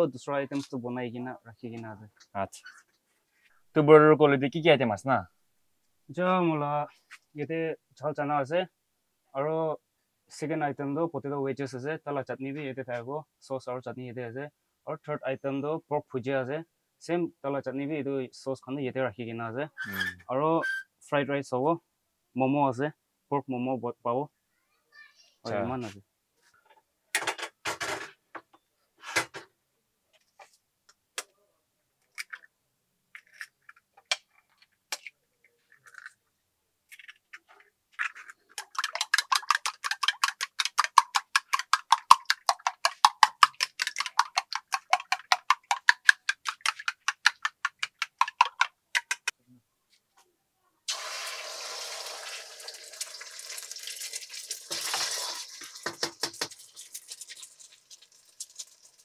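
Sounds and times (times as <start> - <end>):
eggs beaten in ceramic bowl: 38.0 - 49.3
egg sizzling in hot oil: 50.9 - 59.0.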